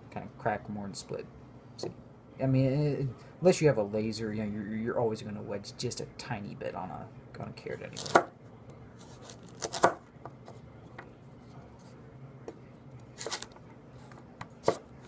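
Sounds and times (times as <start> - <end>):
knife slicing carrot: 7.9 - 8.3, 9.0 - 10.0, 14.6 - 14.9.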